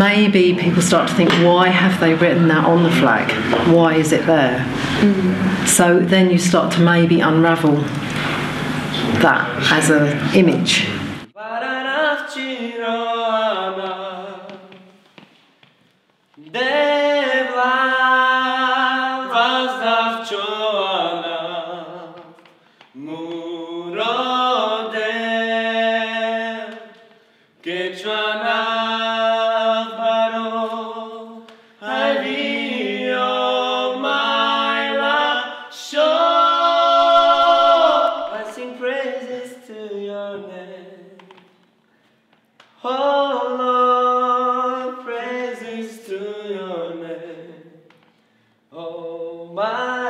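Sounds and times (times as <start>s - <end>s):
man singing unaccompanied: 11.4s - 14.8s, 16.4s - 22.4s, 23.0s - 27.0s, 27.6s - 41.3s, 42.8s - 47.9s.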